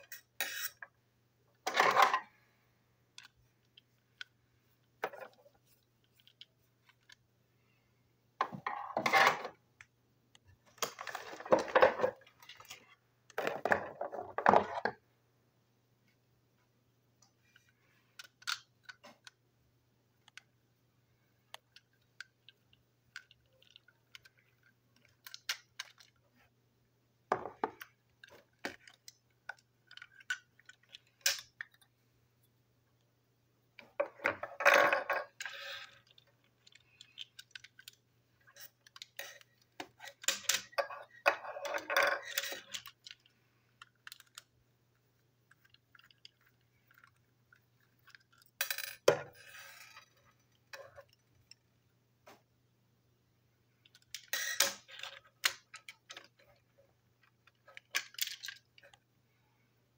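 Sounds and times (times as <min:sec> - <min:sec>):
plastic toy parts clicking and rattling: 0:00.0 - 0:00.9, 0:03.1 - 0:04.4, 0:05.0 - 0:07.2, 0:17.4 - 0:19.4, 0:20.2 - 0:20.5, 0:21.5 - 0:26.4, 0:27.3 - 0:31.9, 0:33.8 - 0:51.7, 0:53.8 - 0:59.1.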